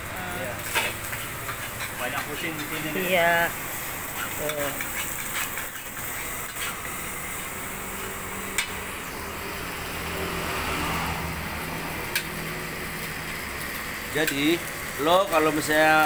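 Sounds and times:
rice frying in a wok: 0.0s - 16.0s.

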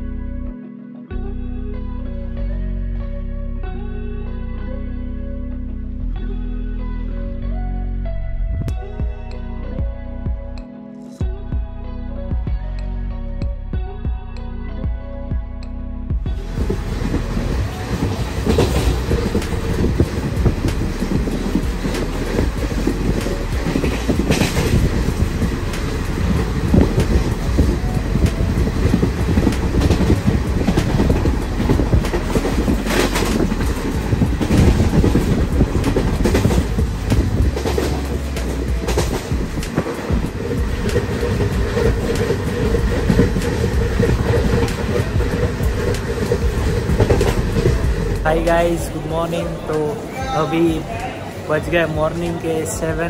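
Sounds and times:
train wheels rumbling on rails: 16.2s - 53.0s
clickety-clack over rail joints: 16.3s - 52.9s
sharp train clatters: 16.3s - 53.0s.

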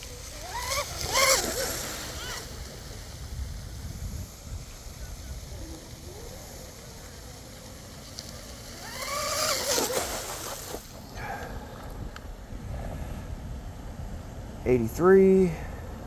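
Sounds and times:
electric boat motor whine: 0.0s - 12.0s.

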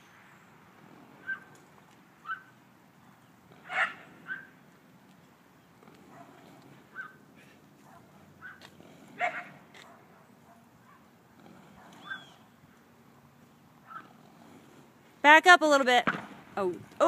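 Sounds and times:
dog barking: 3.6s - 4.5s, 6.1s - 7.2s, 7.8s - 11.1s.

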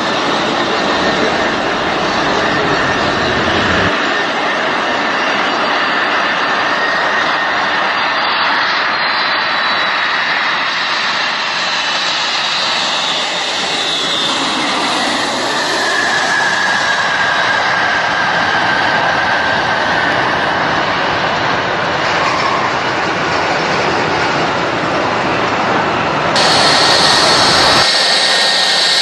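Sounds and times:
jet engines running: 0.0s - 29.0s
faint high whine: 26.4s - 29.0s.

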